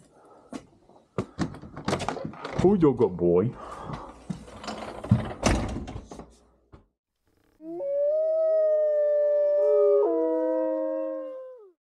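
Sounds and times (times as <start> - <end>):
wolf howling: 7.6 - 11.8.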